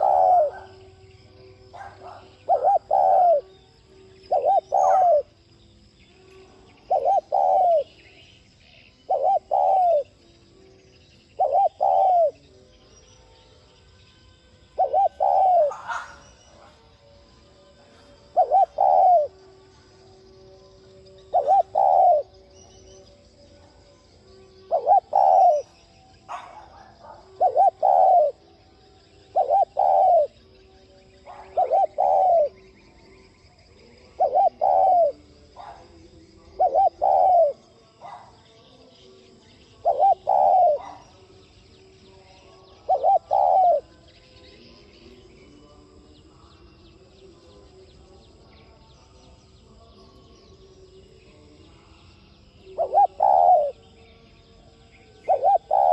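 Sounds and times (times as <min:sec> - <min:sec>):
dove cooing: 0:00.0 - 0:05.4, 0:06.7 - 0:08.3, 0:08.9 - 0:10.2, 0:11.3 - 0:12.5, 0:14.7 - 0:17.0, 0:17.8 - 0:20.1, 0:21.2 - 0:23.0, 0:24.5 - 0:28.6, 0:29.2 - 0:30.6, 0:31.2 - 0:32.7, 0:33.8 - 0:38.4, 0:39.6 - 0:41.3, 0:42.4 - 0:43.9, 0:52.7 - 0:53.8, 0:55.2 - 0:55.9.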